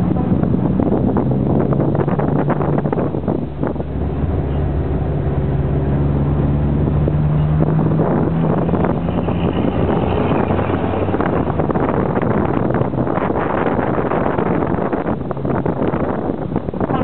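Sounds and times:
car engine drone: 0.0 - 17.0
wind buffeting microphone: 0.0 - 17.0.

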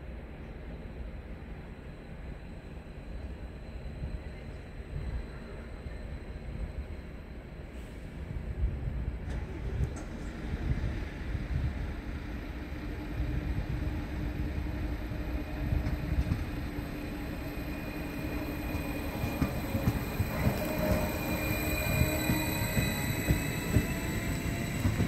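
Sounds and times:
wheels rumbling on rails: 8.6 - 25.0
electric train drive whining: 11.6 - 25.0.

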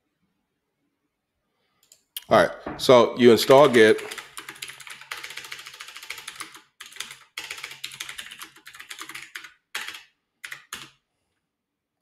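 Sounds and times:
typing on computer keyboard: 3.4 - 11.0.

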